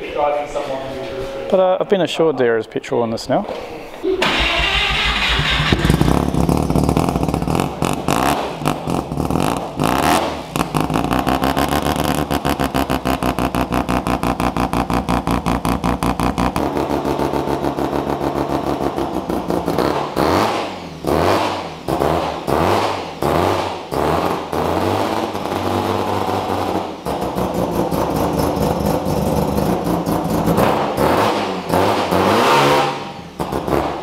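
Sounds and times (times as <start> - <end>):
engine throttle blips: 4.2 - 34.0
rotary engine lumpy idle: 4.6 - 9.5.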